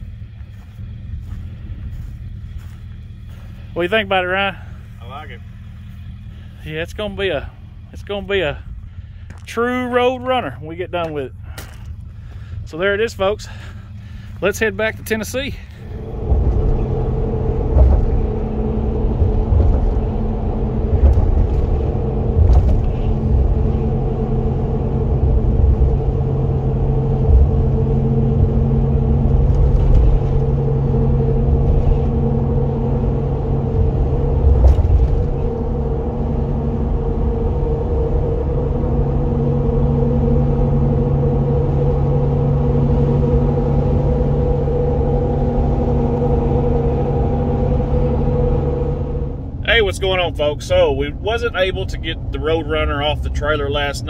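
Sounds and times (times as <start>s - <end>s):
engine and tyre hum: 0.0s - 54.0s
vehicle road noise: 0.0s - 54.0s.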